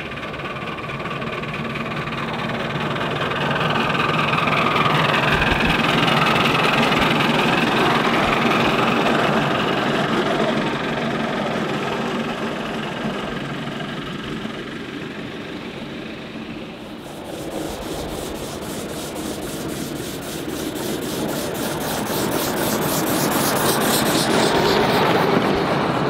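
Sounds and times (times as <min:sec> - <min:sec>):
miniature steam locomotive running: 0:00.0 - 0:26.0.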